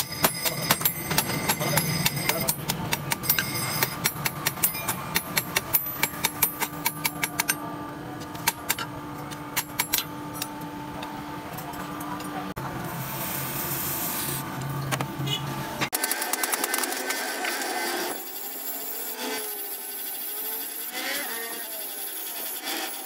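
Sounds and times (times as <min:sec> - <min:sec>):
hammer striking hot steel on anvil: 0:00.0 - 0:07.7, 0:08.3 - 0:08.9, 0:09.5 - 0:10.5.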